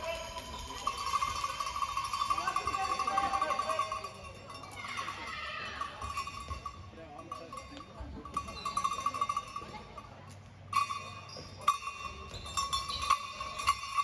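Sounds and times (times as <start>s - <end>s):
shoes squeaking on court floor: 10.8s - 14.0s.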